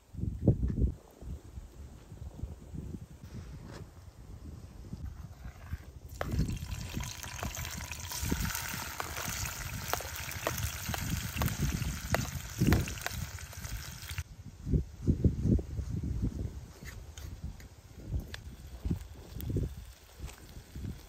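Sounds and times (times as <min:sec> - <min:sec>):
vegetables sizzling in hot oil: 0:06.2 - 0:14.2.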